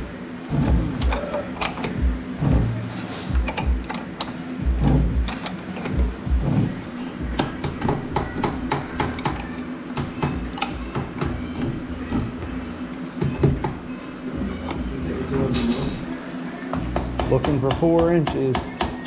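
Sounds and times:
metallic ratchet clicks: 3.4s - 6.0s.

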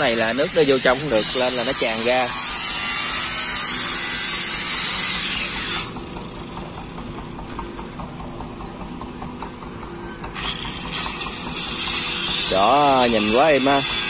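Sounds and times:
boat engine idling: 5.9s - 11.6s.

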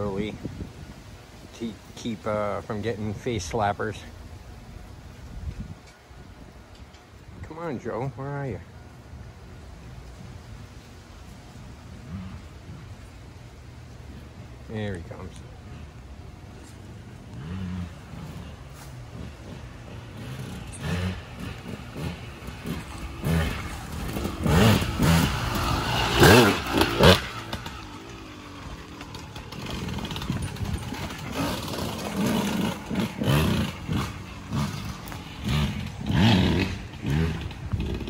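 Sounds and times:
dirt bike engine revving: 11.9s - 13.1s, 14.1s - 38.0s.

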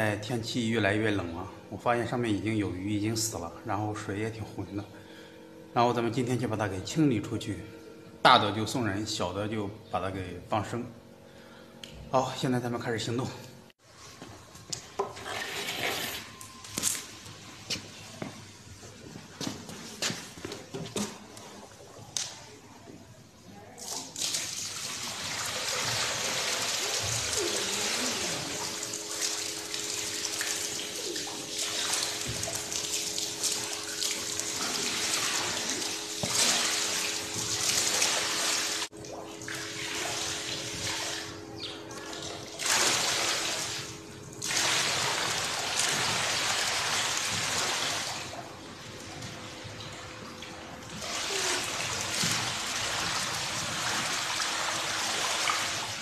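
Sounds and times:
water pouring onto concrete: 23.8s - 41.3s, 42.5s - 48.4s, 50.9s - 56.0s.

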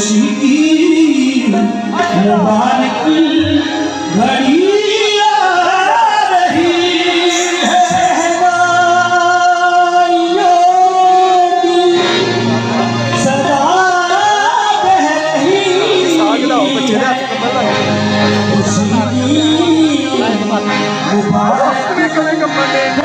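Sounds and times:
harmonium: 0.0s - 23.0s
man singing devotional song: 0.0s - 23.0s.

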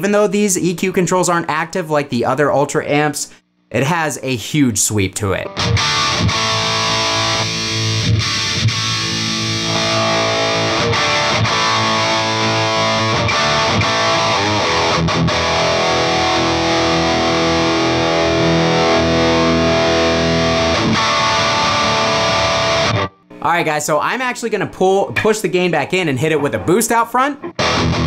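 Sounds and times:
distorted electric guitar riffs: 5.3s - 23.4s, 27.4s - 28.0s.

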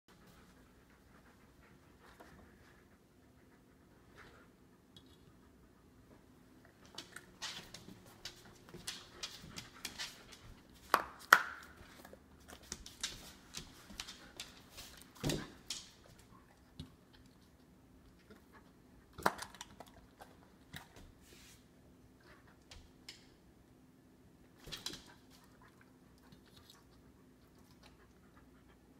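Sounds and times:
dogs crunching asparagus: 6.7s - 21.1s, 25.0s - 28.4s.

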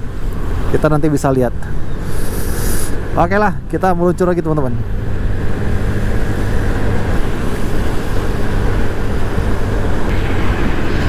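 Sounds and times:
wind rushing over microphone: 4.8s - 11.0s.

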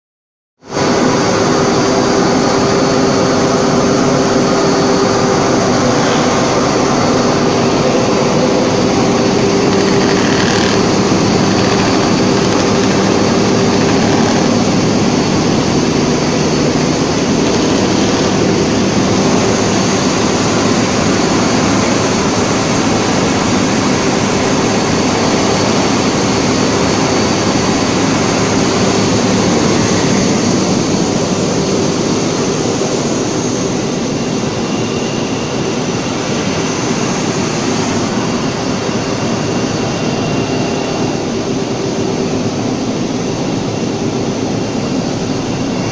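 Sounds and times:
polishing machine running: 3.4s - 32.8s.

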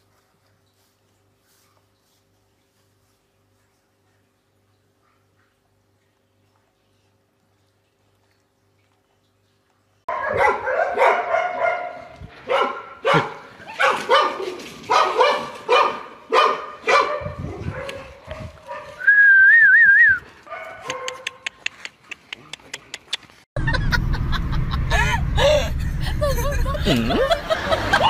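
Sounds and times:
short warbling whistle: 19.0s - 20.2s.

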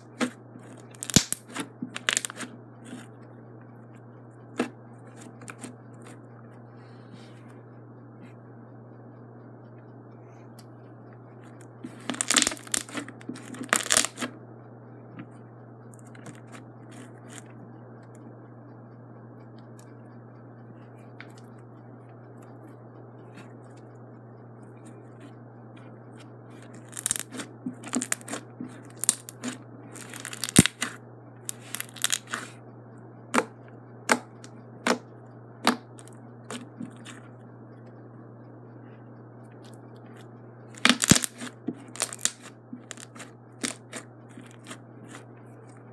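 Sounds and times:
slime crackling and squishing: 0.0s - 3.1s, 11.8s - 14.3s, 26.6s - 32.6s, 39.6s - 45.3s
low hum: 0.0s - 45.9s.

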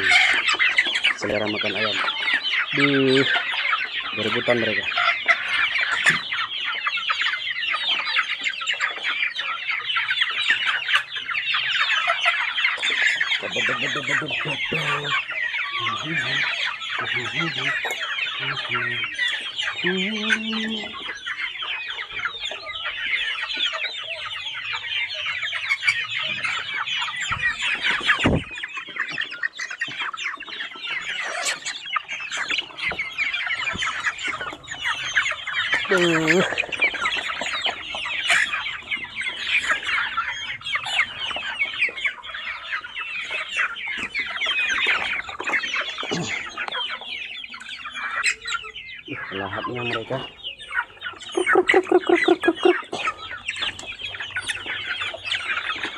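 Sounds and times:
chicks cheeping and clucking: 0.0s - 55.9s
thump: 28.2s - 28.5s.

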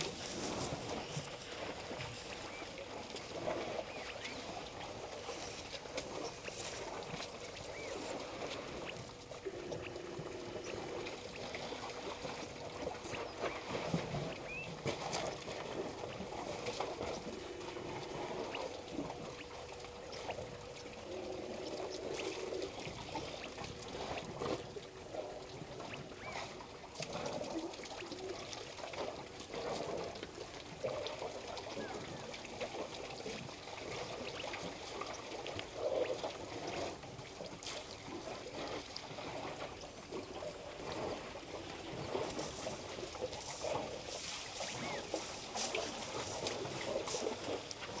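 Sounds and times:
water splashing and pouring: 21.2s - 48.0s.

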